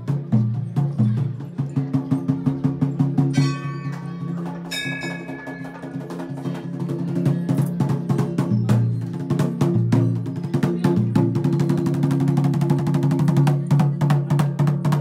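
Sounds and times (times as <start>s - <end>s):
music with fast percussive beat: 0.0s - 15.0s
bright bell strikes: 3.3s - 6.4s.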